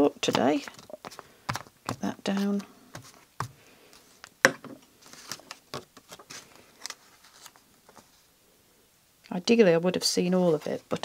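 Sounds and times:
paper rustling and rubbing: 0.2 - 4.2, 5.0 - 8.2.

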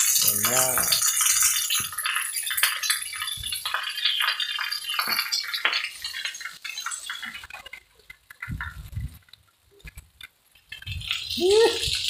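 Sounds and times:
raindrops tapping: 0.0 - 12.0
heavy rain hissing: 11.2 - 12.0.

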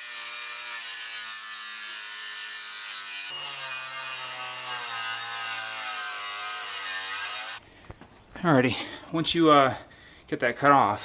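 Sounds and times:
angle grinder grinding steel: 0.0 - 7.6.

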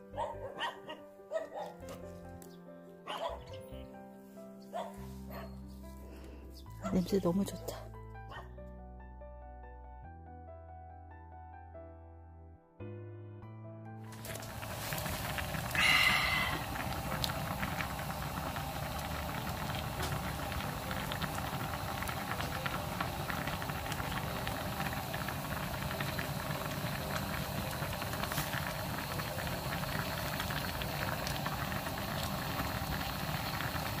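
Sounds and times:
soup boiling with bubbling pops: 14.2 - 34.0.

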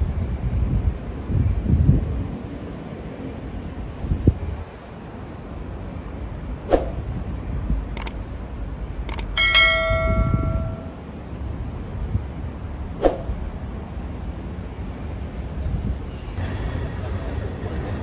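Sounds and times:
street noise: 0.0 - 18.0
sharp clicks: 8.0 - 8.2, 9.1 - 9.6
bell ringing: 9.1 - 11.0.

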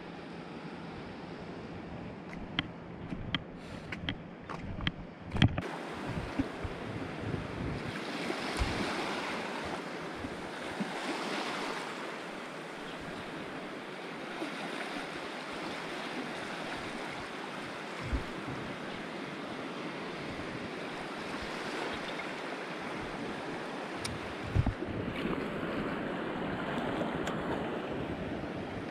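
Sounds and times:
wind buffeting microphone: 2.4 - 10.5, 18.0 - 18.9, 22.9 - 28.9.

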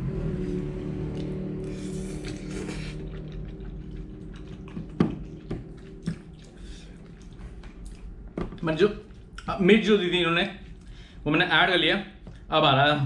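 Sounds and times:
noodles being slurped: 1.0 - 8.2
mouth noises of eating: 1.0 - 8.3.

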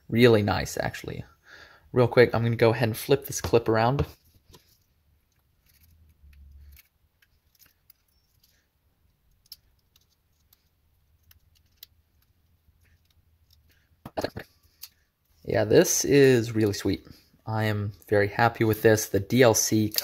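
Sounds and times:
small metallic clicks: 4.6 - 13.8, 14.6 - 15.1.

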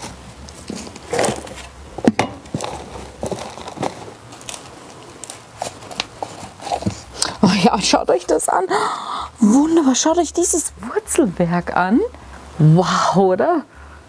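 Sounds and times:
plastic pots handled: 0.0 - 7.4
small knocks and crackles: 0.0 - 7.4.

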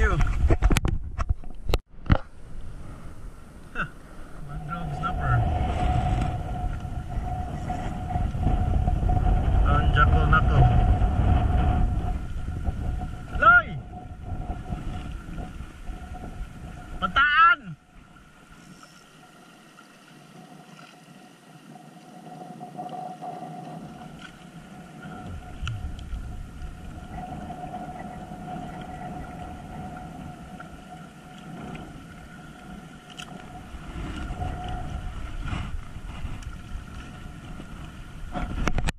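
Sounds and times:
wind rumbling on microphone: 0.0 - 19.4, 20.0 - 38.9
distant boat motor hum: 1.9 - 17.2.

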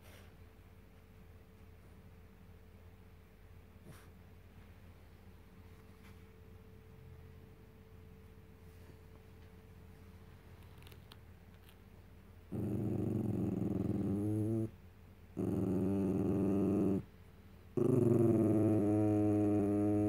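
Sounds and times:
dog growling: 12.5 - 14.8, 15.4 - 17.1, 17.7 - 20.0.

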